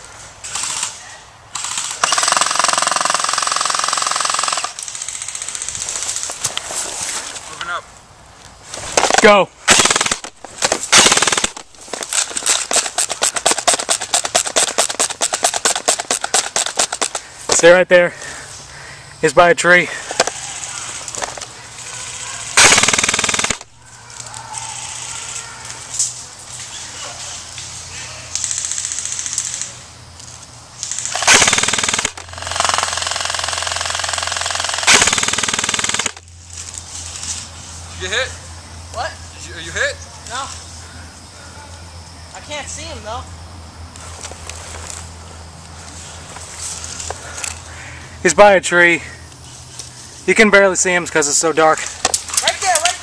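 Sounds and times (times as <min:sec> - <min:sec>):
airsoft rifles firing full auto: 0:00.5 - 0:06.2, 0:09.0 - 0:17.2, 0:22.0 - 0:23.7, 0:30.9 - 0:36.2.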